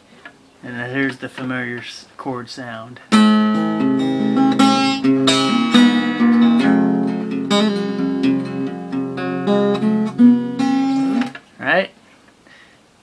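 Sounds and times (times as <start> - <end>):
acoustic guitar notes ringing: 3.1 - 11.4.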